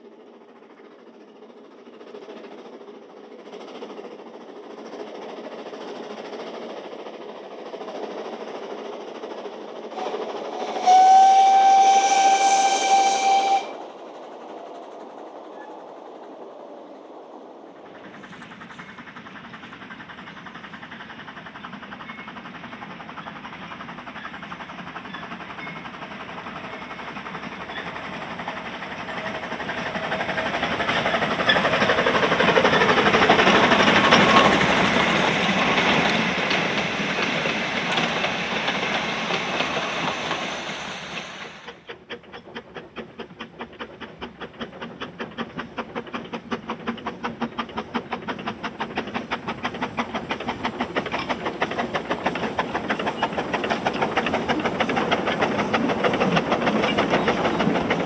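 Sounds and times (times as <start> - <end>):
steam engine hissing: 0.0 - 58.0
train approaching: 0.0 - 58.0
steam locomotive whistle blast: 10.0 - 13.8.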